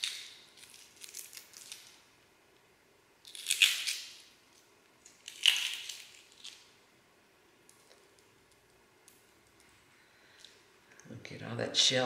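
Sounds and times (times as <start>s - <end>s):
eggshell crackling: 3.2s - 4.3s, 5.0s - 6.8s.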